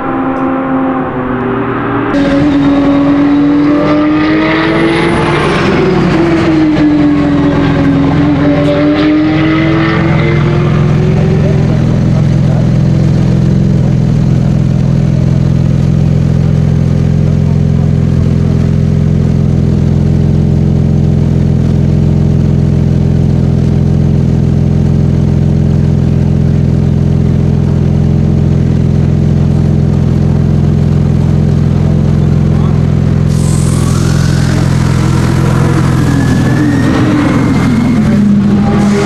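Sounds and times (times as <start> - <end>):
car engine idling loud exhaust: 5.1 - 8.7, 9.3 - 39.0.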